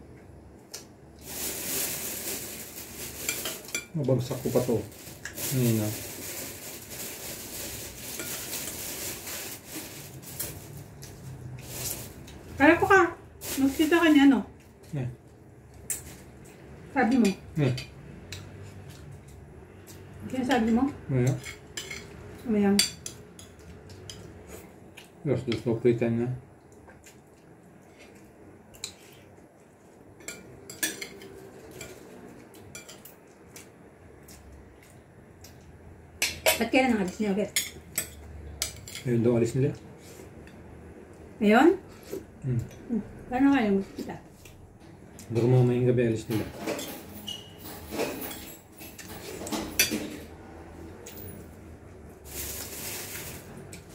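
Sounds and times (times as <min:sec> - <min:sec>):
rustling and scraping at table: 0:46.3 - 0:50.4.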